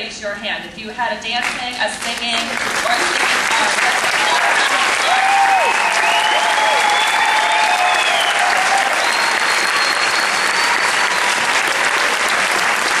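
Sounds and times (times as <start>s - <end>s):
audience applauding: 2.2s - 13.0s
long high calls: 5.4s - 11.6s.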